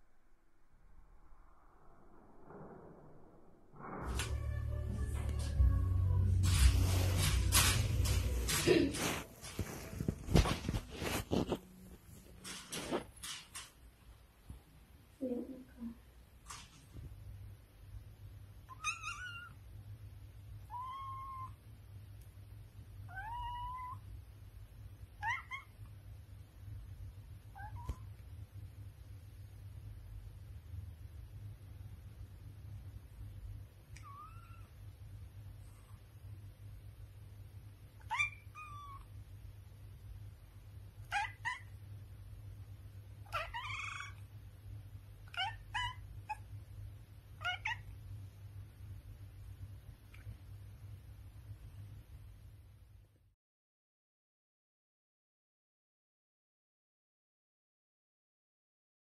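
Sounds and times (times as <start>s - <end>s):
cat meowing: 18.7s - 19.6s, 20.7s - 21.6s, 23.1s - 24.0s, 25.2s - 25.8s, 27.6s - 28.1s, 34.0s - 34.8s, 38.0s - 39.1s, 41.0s - 41.7s, 43.2s - 44.2s, 45.2s - 46.4s, 47.4s - 47.9s.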